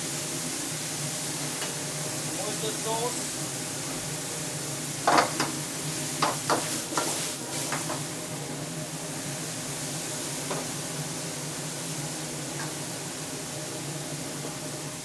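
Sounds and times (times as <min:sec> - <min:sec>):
food sizzling: 0:00.0 - 0:15.0
gas burner roaring: 0:00.0 - 0:15.0
ladle clanking and scraping wok: 0:06.2 - 0:08.1.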